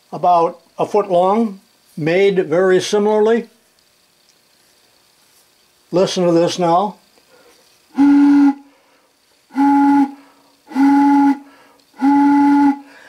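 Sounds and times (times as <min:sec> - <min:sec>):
pipe whistle hooting: 0:07.9 - 0:08.8, 0:09.5 - 0:13.0.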